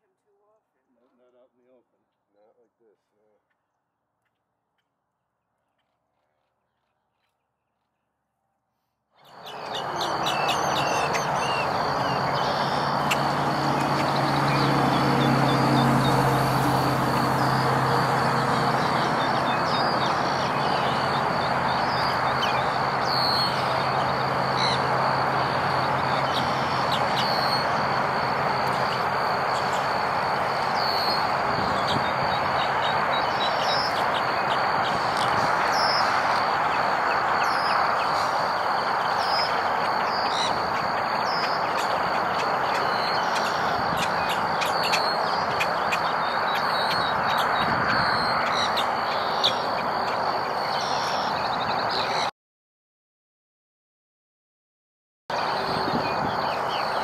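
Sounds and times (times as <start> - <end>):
birds chirping: 9.2 - 52.3, 55.3 - 57.0
steady rushing noise: 9.4 - 50.5.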